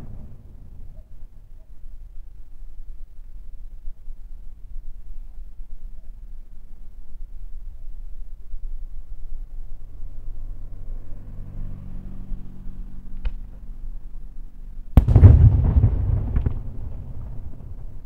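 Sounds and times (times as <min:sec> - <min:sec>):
rolling echo: 0:00.0 - 0:01.4, 0:15.0 - 0:18.0
firework shell bang: 0:15.0 - 0:17.0
firework crackles: 0:15.0 - 0:18.0.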